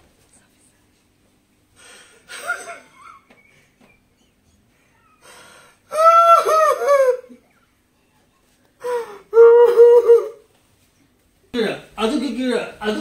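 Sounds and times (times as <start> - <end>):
man wailing in falsetto: 5.9 - 7.5, 8.8 - 10.4.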